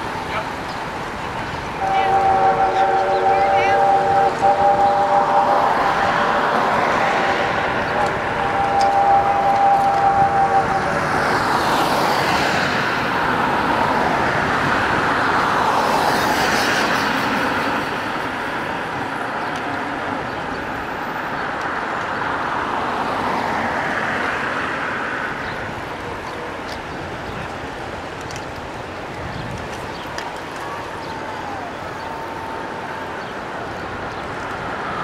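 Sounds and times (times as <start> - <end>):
bicycles whirring past: 0.0 - 21.4.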